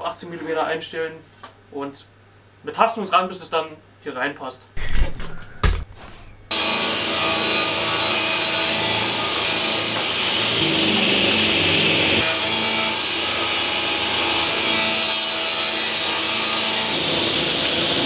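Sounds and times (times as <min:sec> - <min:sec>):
table saw cutting wood: 0:06.5 - 0:18.0.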